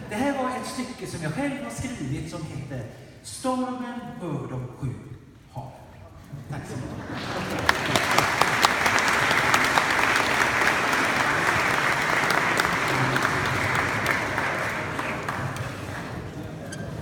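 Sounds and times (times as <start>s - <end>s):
audience applauding: 7.1s - 16.6s.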